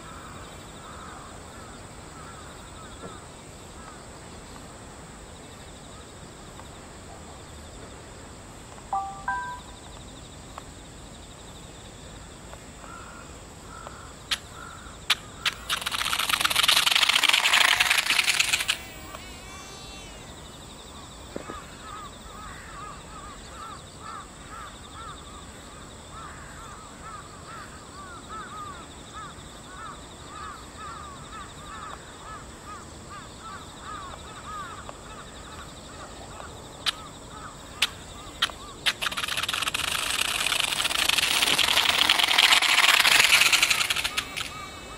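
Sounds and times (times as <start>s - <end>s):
sharp clicks: 15.1s - 19.9s, 36.8s - 37.0s, 37.8s - 44.9s
electric motors and propellers whirring: 15.1s - 22.1s, 37.8s - 44.9s
bird calling: 33.1s - 44.9s.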